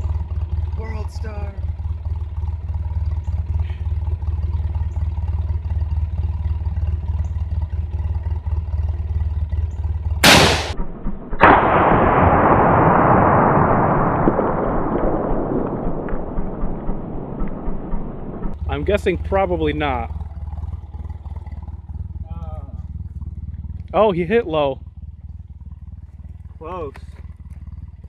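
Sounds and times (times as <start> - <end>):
steady low rumble: 9.7 - 28.0
rifle shot: 10.2 - 18.6.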